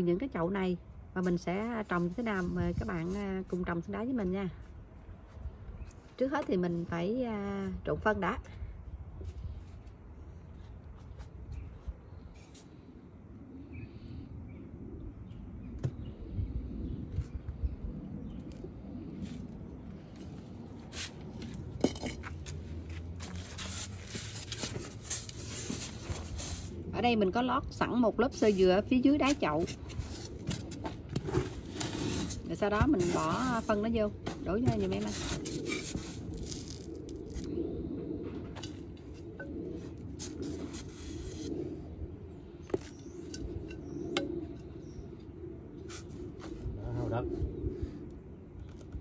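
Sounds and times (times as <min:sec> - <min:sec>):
metal blade scraping soil in pot: 0:31.2 - 0:33.8, 0:34.9 - 0:37.5.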